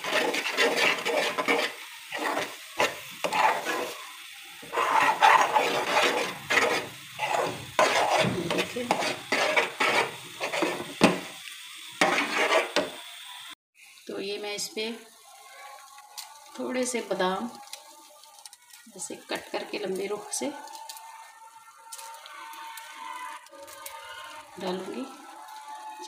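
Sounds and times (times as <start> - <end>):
metal spoon scraping frying pan: 0.0 - 11.4, 12.0 - 13.0.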